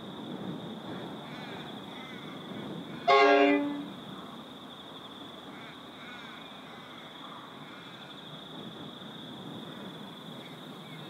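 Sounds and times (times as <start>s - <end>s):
insect trill: 0.0s - 11.0s
faint bird calls: 0.9s - 3.9s
locomotive horn: 3.1s - 3.9s.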